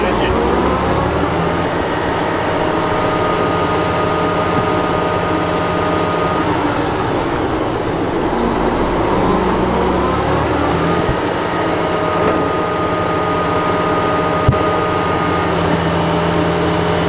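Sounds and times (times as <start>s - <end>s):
rising tone: 0.0s - 16.0s
excavator diesel engine running: 0.0s - 17.0s
high steady whine: 0.0s - 17.0s.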